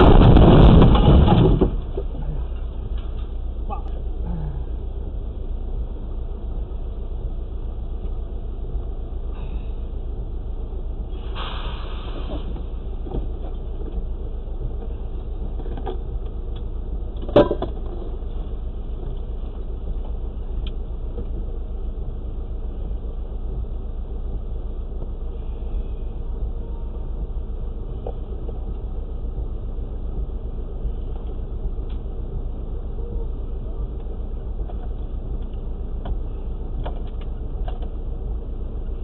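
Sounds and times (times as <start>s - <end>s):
diesel truck engine idling: 0.0s - 39.0s
brief hiss: 11.2s - 12.6s.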